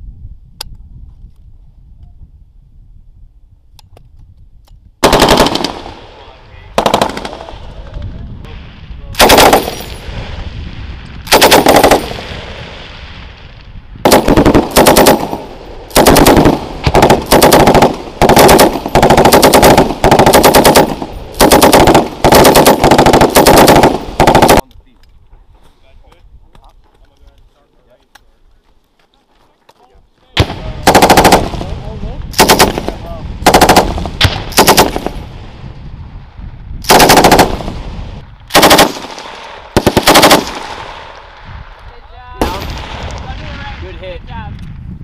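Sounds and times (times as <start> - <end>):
machine gun firing bursts: 5.0 - 6.0, 6.8 - 7.5, 9.2 - 9.9, 11.3 - 12.3, 14.0 - 24.6, 30.8 - 31.7, 32.4 - 35.2, 36.9 - 37.8, 38.5 - 41.0
rolling gunfire echo: 5.0 - 10.4, 11.2 - 13.4, 14.0 - 24.6, 30.4 - 35.6, 36.8 - 41.4, 42.4 - 44.0.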